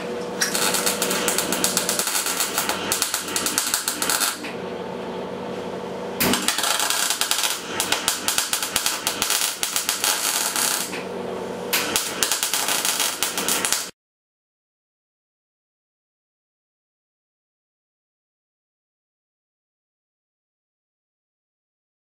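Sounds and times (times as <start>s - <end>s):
welding arc crackling: 0.0s - 4.5s, 6.2s - 11.0s, 11.7s - 13.9s.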